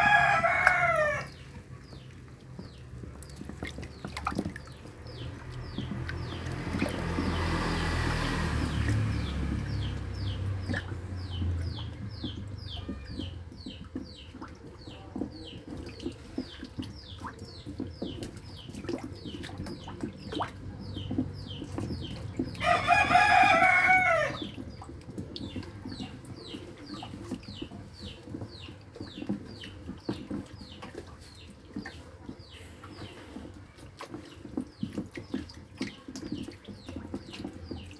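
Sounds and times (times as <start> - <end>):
rooster crowing: 0.0 - 1.4, 22.6 - 24.4
turtles splashing in water: 0.0 - 37.9.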